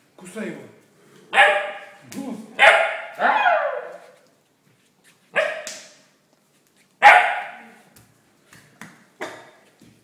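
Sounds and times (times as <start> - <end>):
puppy barking: 1.3 - 2.0, 2.6 - 4.1, 5.3 - 5.7, 7.0 - 7.8.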